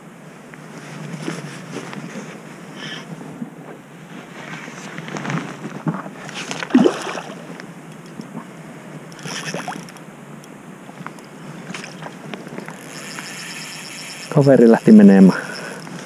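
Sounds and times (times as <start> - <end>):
fish splashing in water: 6.6 - 7.5.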